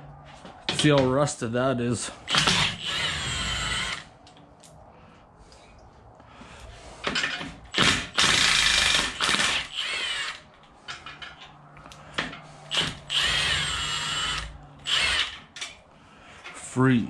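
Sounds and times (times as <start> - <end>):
cordless ratchet whining: 2.3 - 4.1, 7.1 - 10.5, 12.7 - 15.7.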